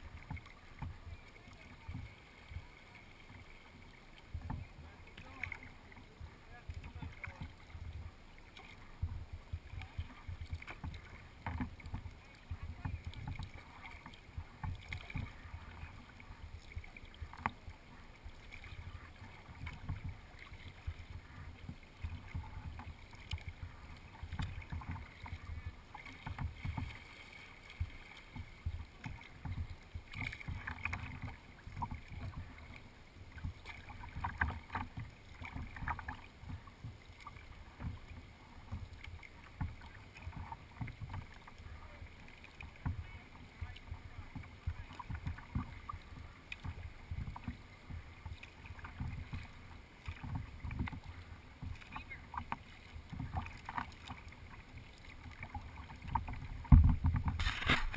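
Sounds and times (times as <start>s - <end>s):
water lapping on kayak hull: 0.0s - 57.9s
wind rumble on microphone: 55.5s - 57.9s.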